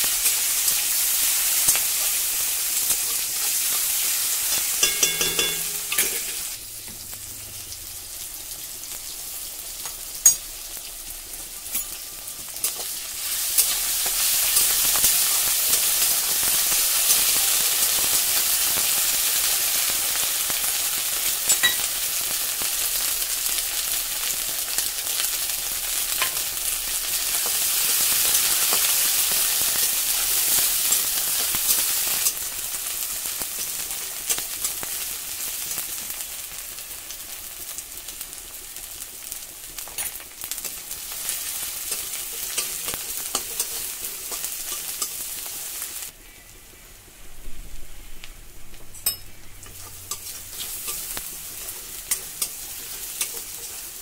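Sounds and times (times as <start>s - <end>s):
vegetables sizzling in hot oil: 0.0s - 47.2s, 48.0s - 54.0s.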